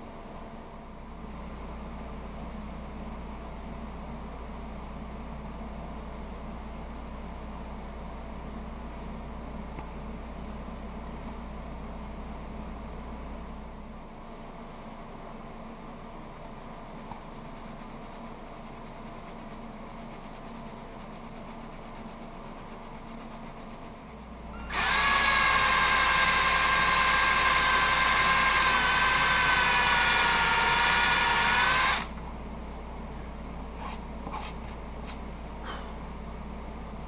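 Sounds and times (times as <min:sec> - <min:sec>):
cordless drill boring leather: 0:24.6 - 0:32.2.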